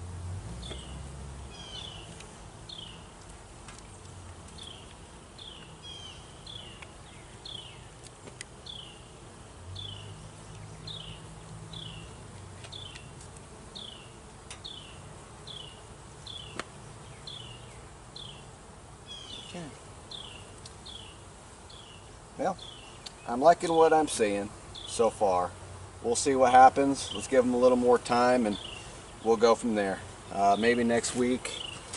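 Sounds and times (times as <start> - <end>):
honeybees buzzing: 0.0 - 31.9
light clicks from handling hive: 2.0 - 2.3, 6.7 - 7.0, 8.0 - 8.6, 12.3 - 13.5, 14.4 - 14.8, 16.2 - 16.8, 20.5 - 20.9, 22.9 - 23.3, 31.0 - 31.9.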